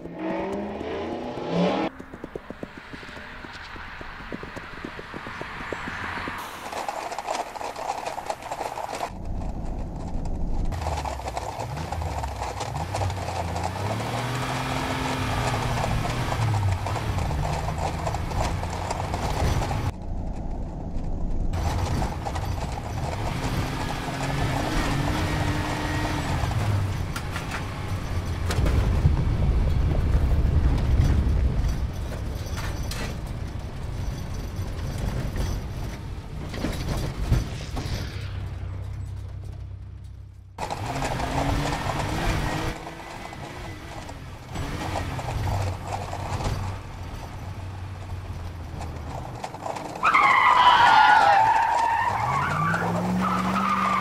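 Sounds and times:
car engine revving: 0.0s - 6.8s, 9.1s - 19.9s, 21.6s - 29.6s, 37.0s - 54.0s
hooves galloping on pavement: 0.0s - 20.0s, 20.9s - 37.6s, 38.8s - 54.0s.

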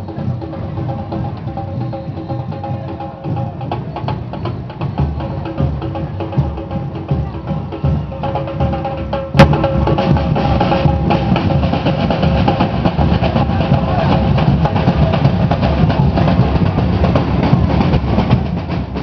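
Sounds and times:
samba drum group playing: 0.0s - 19.0s.

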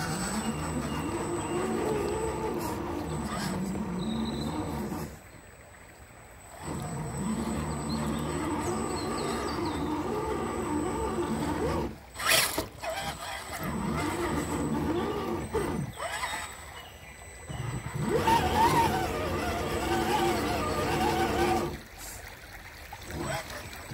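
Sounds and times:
electric motor whining: 0.0s - 5.3s, 6.4s - 22.0s, 23.0s - 23.9s.

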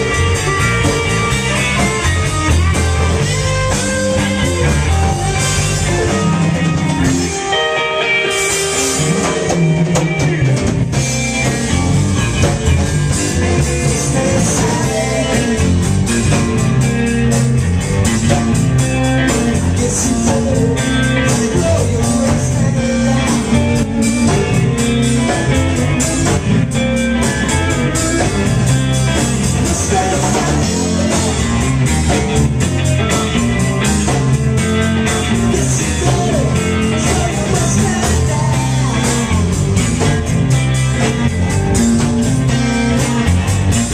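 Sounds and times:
bass guitar: 0.0s - 43.9s
drum kit: 0.0s - 43.9s
electric guitar: 0.0s - 43.9s
person singing: 13.6s - 16.5s, 19.3s - 24.7s, 29.4s - 31.8s, 35.1s - 39.6s.

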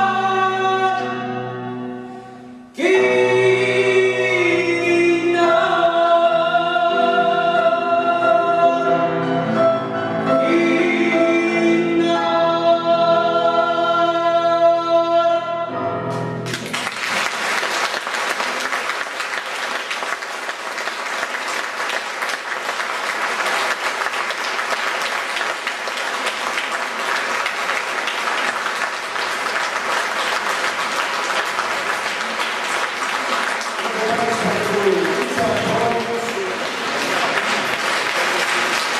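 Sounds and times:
person singing long held note: 0.0s - 9.1s
piano: 0.0s - 38.9s
audience applause: 16.4s - 38.9s.

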